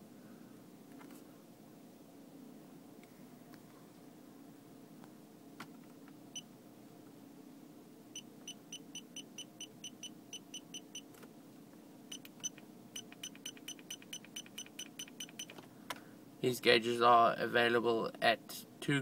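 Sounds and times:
short high electronic beeps: 12.1s - 15.5s.

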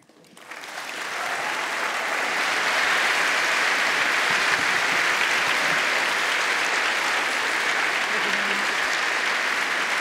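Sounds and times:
large audience applause: 0.1s - 10.0s.

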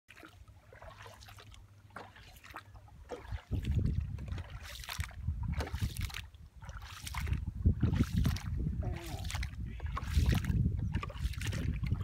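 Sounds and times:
paddle pulling through water: 0.1s - 12.0s
water splashing and dripping: 0.1s - 12.0s.

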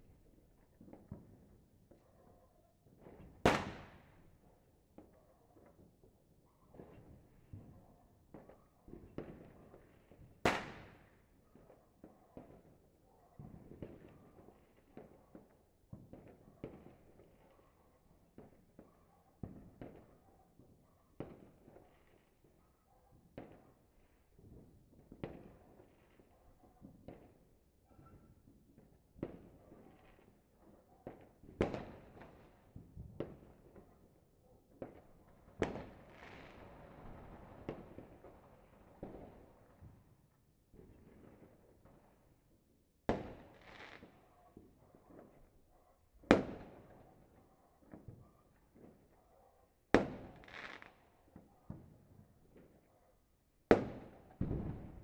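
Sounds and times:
fireworks bangs: 34.8s - 40.0s, 53.7s - 55.0s
firecrackers crackling: 35.6s - 39.6s, 50.0s - 50.9s.

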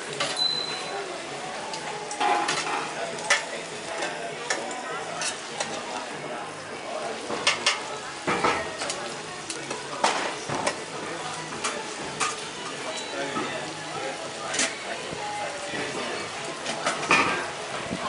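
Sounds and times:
food sizzling on a pan: 0.0s - 18.0s
metal utensils scraping pan: 2.1s - 5.8s.

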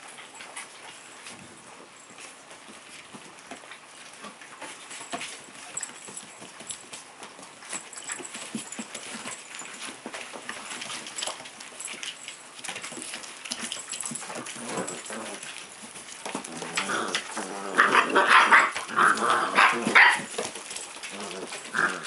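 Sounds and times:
claws and paws pattering: 0.0s - 22.0s
training pads rustling: 4.7s - 22.0s.

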